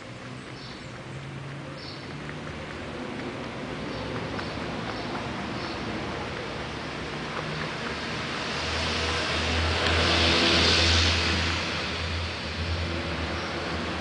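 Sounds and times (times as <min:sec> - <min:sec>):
motor vehicle passing by: 0:00.0 - 0:14.0.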